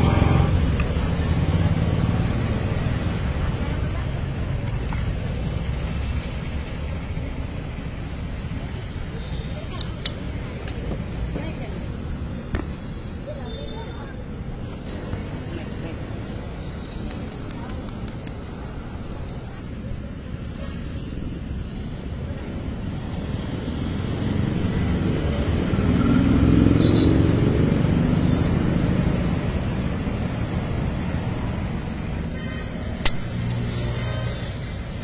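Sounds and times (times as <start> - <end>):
vehicle passing close: 0.0 - 4.4, 22.5 - 32.3
street traffic rumble: 0.0 - 35.0
sharp click: 33.0 - 33.7.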